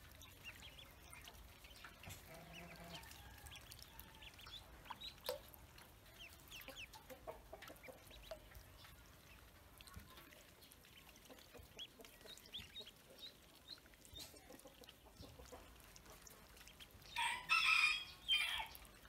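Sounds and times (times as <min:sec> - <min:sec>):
ducklings peeping: 0:00.0 - 0:19.0
rooster crowing: 0:17.2 - 0:18.7.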